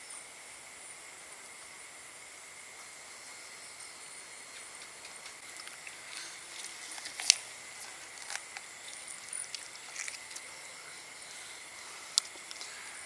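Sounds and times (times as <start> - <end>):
crackles of skin and meat: 4.5 - 13.0
wet squishing of chicken meat: 5.4 - 10.6.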